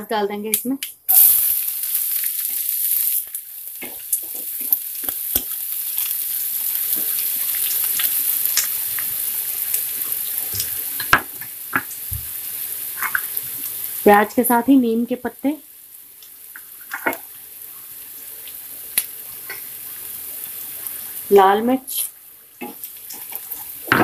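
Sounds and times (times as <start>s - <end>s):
onion sizzling in hot oil: 0.1s - 24.0s.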